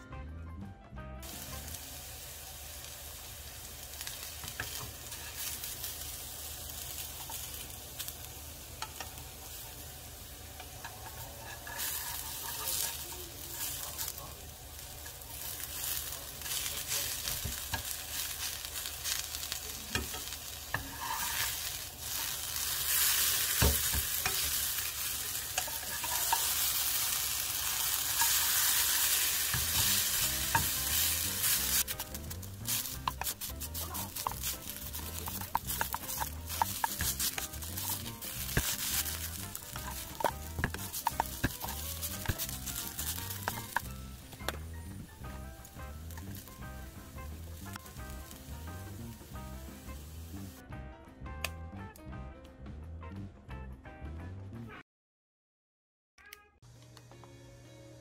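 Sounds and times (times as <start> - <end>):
potato pancake sizzling in oil: 1.2 - 44.4, 45.2 - 50.6
spatula scraping pan: 10.6 - 13.8, 19.9 - 44.0.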